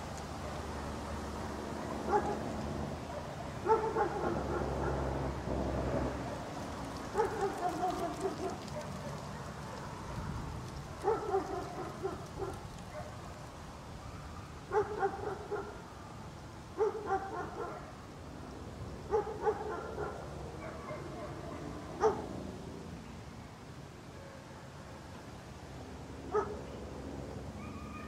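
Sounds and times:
guard dog barking: 2.1 - 2.4, 3.1 - 5.0, 7.1 - 9.2, 11.0 - 13.2, 14.7 - 15.8, 16.8 - 17.9, 19.1 - 22.3, 26.3 - 26.6.

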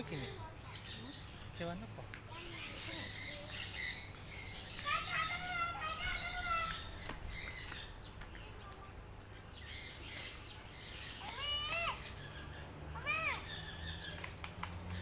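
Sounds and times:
bird calls rising and falling: 0.0 - 15.0.

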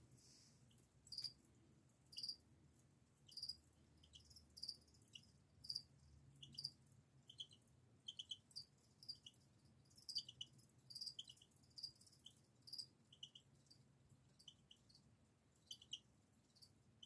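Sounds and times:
crickets chirping: 2.1 - 2.4, 3.3 - 13.8.

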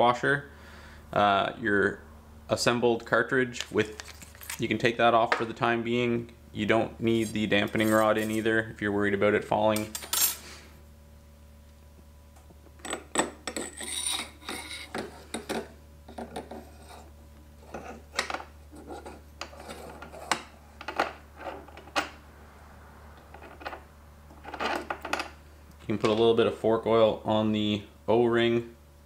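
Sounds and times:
metal parts clinking and scraping: 4.0 - 4.6, 12.8 - 17.0, 23.3 - 25.4.

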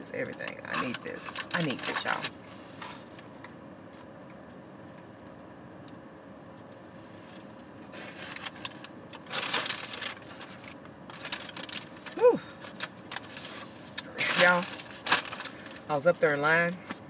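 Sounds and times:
low car cabin hum: 0.0 - 17.0
paper bag crinkling: 0.9 - 3.1, 7.9 - 15.9.

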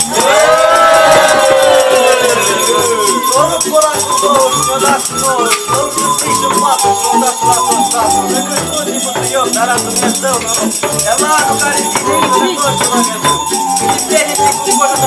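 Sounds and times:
tambourines beaten and shaken: 0.0 - 15.0
long drawn-out shouts: 0.1 - 3.0.

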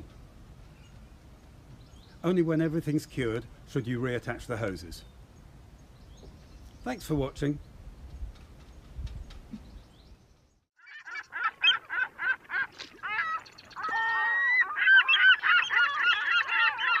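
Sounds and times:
geese honking: 10.8 - 17.0.

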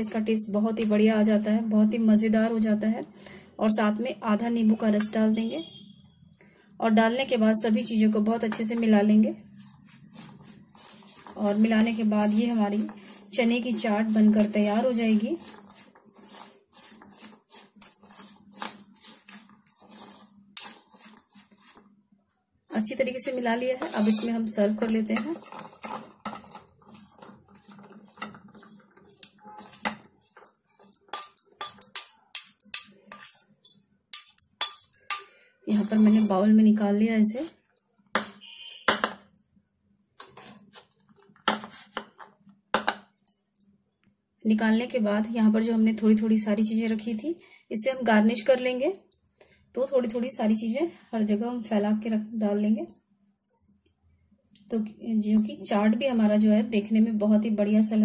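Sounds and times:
spoon stirring wet food in bowl: 8.4 - 21.9, 22.8 - 36.5, 37.5 - 39.4, 40.2 - 43.2.

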